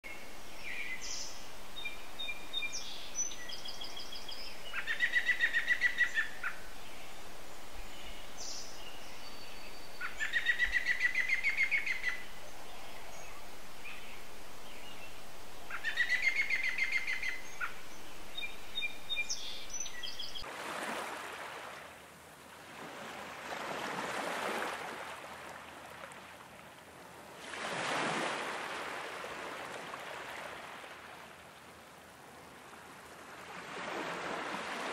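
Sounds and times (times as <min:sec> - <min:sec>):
steady outdoor hiss: 0:00.0 - 0:34.9
songbird trilling: 0:04.7 - 0:06.6, 0:10.0 - 0:14.1, 0:15.7 - 0:20.4
bird chirps: 0:15.7 - 0:20.4
slow washes of noise: 0:20.4 - 0:34.9.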